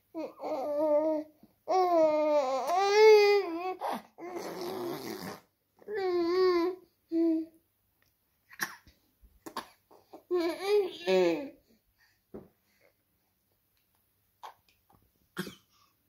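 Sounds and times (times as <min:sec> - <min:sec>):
baby babbling: 0:10.0 - 0:11.6.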